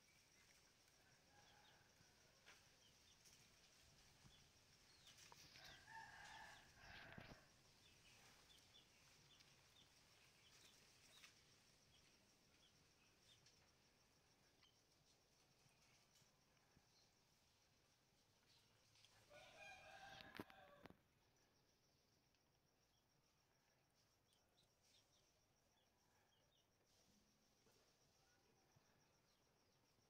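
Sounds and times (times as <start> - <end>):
rooster crowing faintly: 5.3 - 7.5, 19.1 - 21.0.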